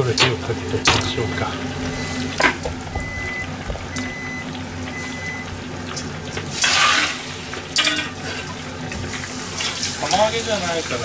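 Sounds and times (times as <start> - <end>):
running water: 0.0 - 11.0.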